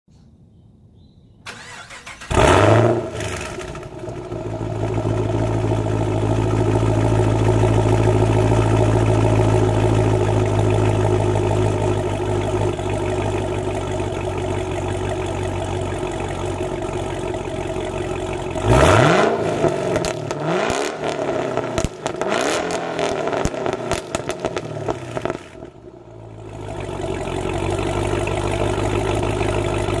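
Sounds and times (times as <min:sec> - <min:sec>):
car engine starting: 0:01.4 - 0:30.0
car engine revving: 0:01.5 - 0:12.8, 0:13.4 - 0:25.8
car engine idling: 0:01.5 - 0:30.0.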